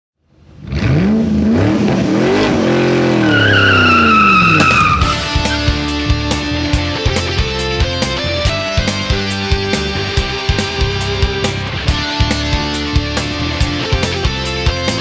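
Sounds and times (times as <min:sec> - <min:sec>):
vehicle engine revving by: 0:00.4 - 0:05.9
tyre squeal: 0:03.1 - 0:05.8
music with steady drum beat: 0:05.0 - 0:15.0.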